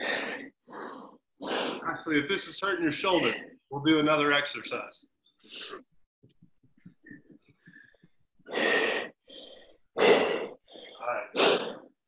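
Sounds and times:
person breathing heavily: 0:00.0 - 0:02.1, 0:07.6 - 0:12.0.

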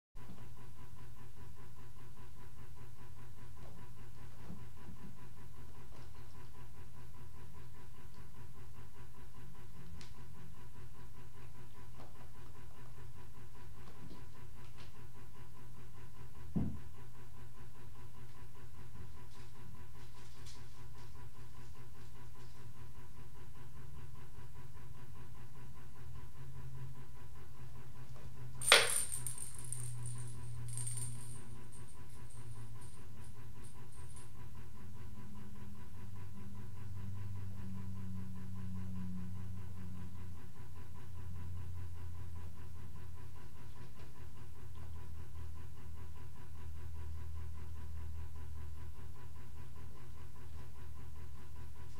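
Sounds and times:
steady low hum: 0:00.2 - 0:51.9
sharp metallic clink: 0:28.6 - 0:30.1
faint high tinkling: 0:28.6 - 0:32.7.

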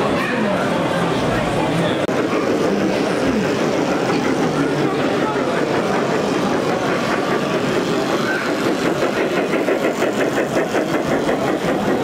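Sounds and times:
crowd chatter: 0:00.0 - 0:12.0
model train wheels clicking: 0:02.1 - 0:12.0.

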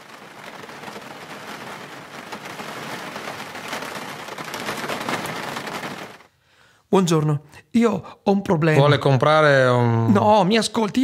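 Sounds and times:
dense crackling with fine clicks: 0:00.0 - 0:06.6.

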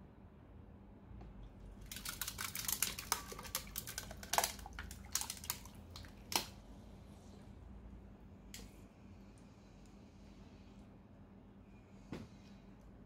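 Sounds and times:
water poured onto ice: 0:01.8 - 0:06.4.

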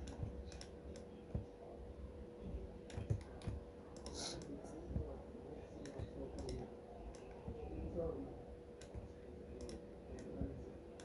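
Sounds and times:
computer mouse clicks: 0:00.0 - 0:01.1, 0:02.9 - 0:04.5, 0:05.8 - 0:07.6, 0:08.8 - 0:10.4
keyboard clicks: 0:00.0 - 0:01.1, 0:02.9 - 0:04.2, 0:05.8 - 0:07.4, 0:08.8 - 0:10.3
faint steady hum: 0:00.0 - 0:11.0.

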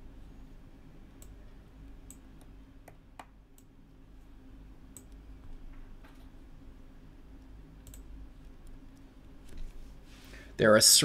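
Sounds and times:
low steady hum: 0:00.0 - 0:11.0
light clicks and ticks: 0:01.1 - 0:03.7, 0:04.9 - 0:06.2, 0:07.4 - 0:09.7.

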